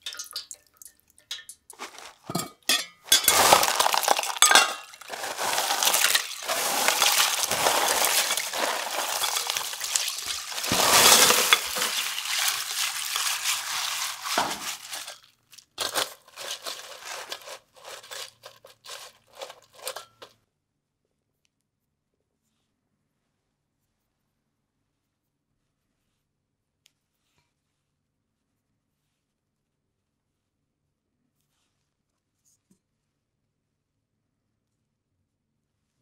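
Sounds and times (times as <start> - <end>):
ice clinking on glass: 0.0 - 15.2, 15.8 - 20.3
crushed ice crunching and sloshing: 1.7 - 20.3.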